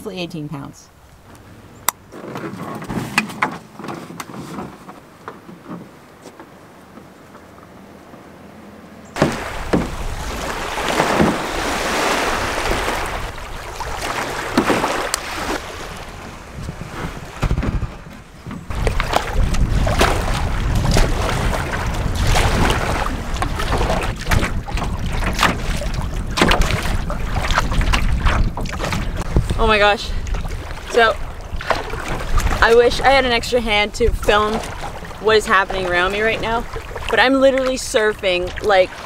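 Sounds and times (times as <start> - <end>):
waves slapping and splashing: 9.2 - 39.0
wind buffeting microphone: 9.2 - 39.0.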